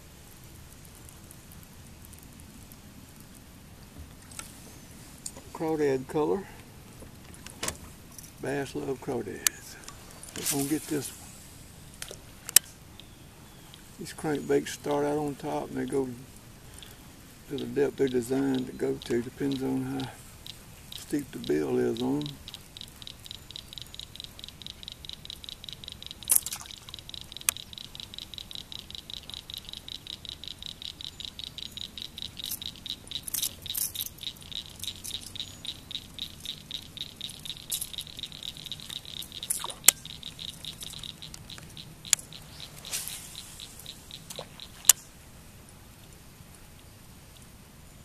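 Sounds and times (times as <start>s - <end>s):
fishing reel clicking: 20.9s - 42.4s.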